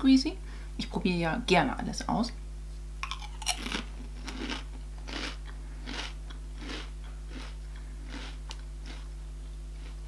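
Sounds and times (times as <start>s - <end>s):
person crunching chip: 3.0s - 9.1s, 9.7s - 10.0s.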